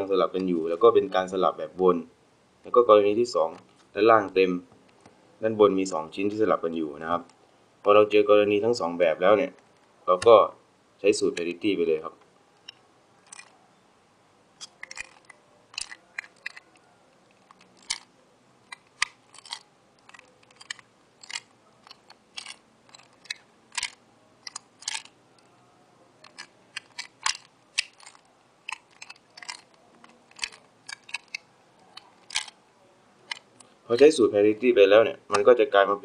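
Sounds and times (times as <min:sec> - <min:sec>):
plastic puzzle clicking: 0:12.6 - 0:13.5, 0:14.6 - 0:25.6, 0:26.2 - 0:32.6, 0:33.2 - 0:34.1.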